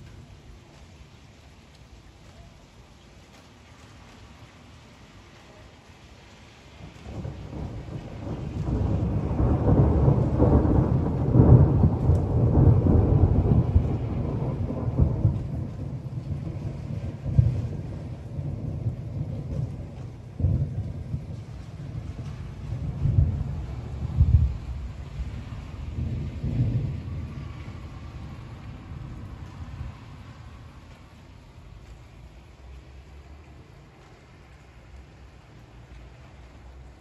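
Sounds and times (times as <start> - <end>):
rolling thunder: 6.8 - 32.6.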